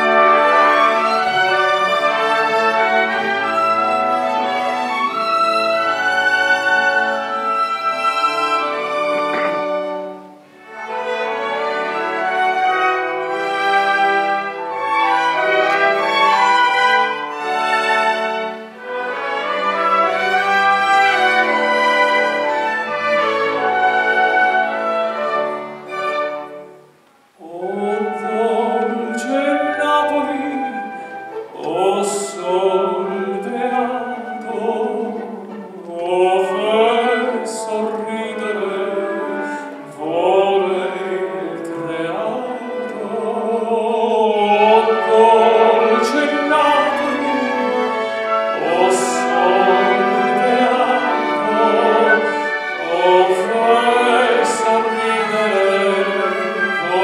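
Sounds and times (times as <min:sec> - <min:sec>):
orchestra strings melody: 0:00.0 - 0:57.0
man singing operatically: 0:27.4 - 0:47.9, 0:48.5 - 0:57.0.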